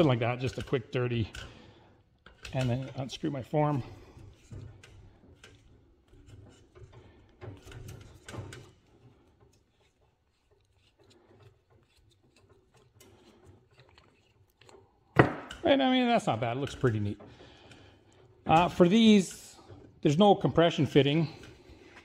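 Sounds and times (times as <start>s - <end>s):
faint plastic rubbing: 2.3s - 15.2s.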